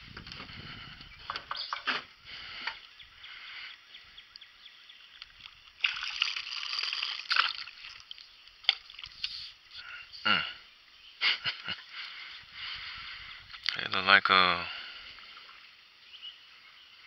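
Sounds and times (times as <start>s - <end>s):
water sloshing and splashing: 5.1s - 9.3s.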